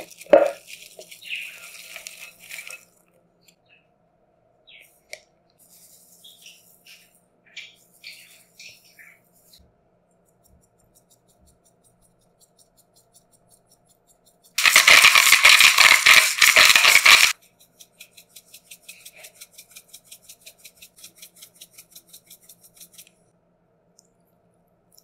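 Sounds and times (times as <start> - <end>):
loud rattling: 14.6 - 17.3.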